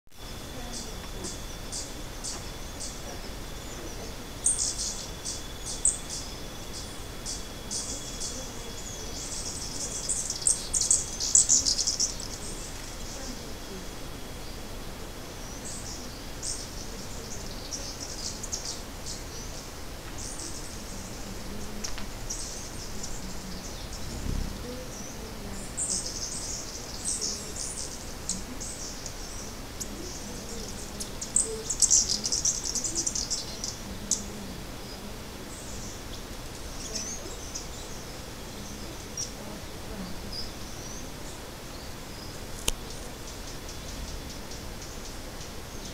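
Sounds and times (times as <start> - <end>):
faint background hiss: 0.1 - 45.9
songbirds chirping: 0.1 - 45.9.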